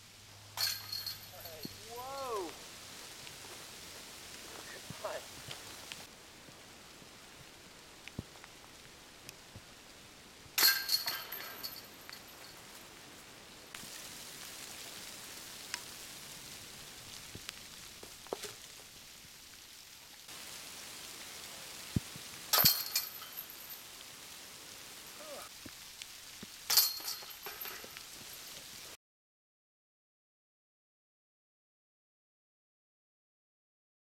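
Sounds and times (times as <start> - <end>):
metal chains jangling: 0.6 - 2.4, 10.6 - 12.6, 22.5 - 23.9, 26.7 - 28.5.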